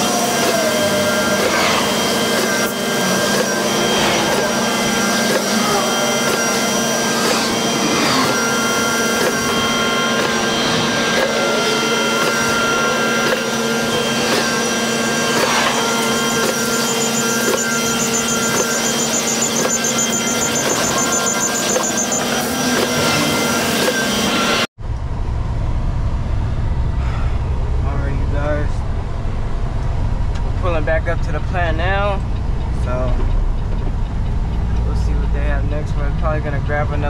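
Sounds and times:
mixer truck mechanical whine: 0.0s - 37.0s
low rumble inside truck cab: 24.8s - 37.0s.

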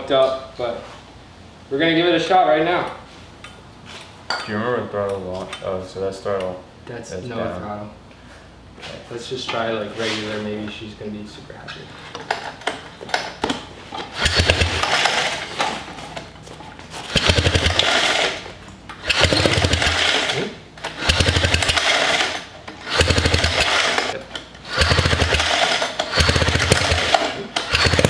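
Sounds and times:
engine cranking: 14.1s - 15.7s, 17.1s - 28.0s.

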